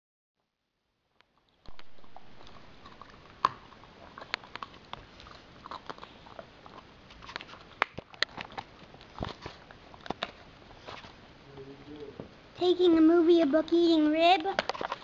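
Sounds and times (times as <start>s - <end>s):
dog chewing a bone: 1.4s - 11.1s.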